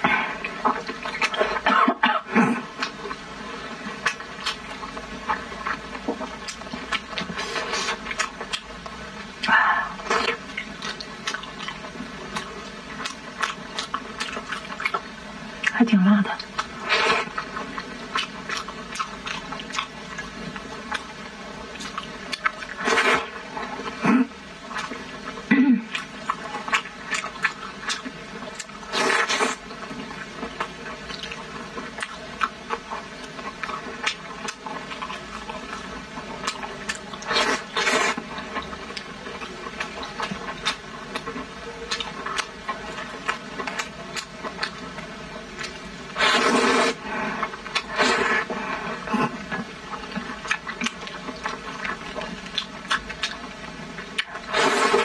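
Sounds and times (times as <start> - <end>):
wet chewing: 0.1 - 1.7, 2.4 - 55.0
wet slurps: 21.8 - 24.9, 28.6 - 29.6, 36.5 - 38.2, 45.6 - 53.4, 54.2 - 55.0.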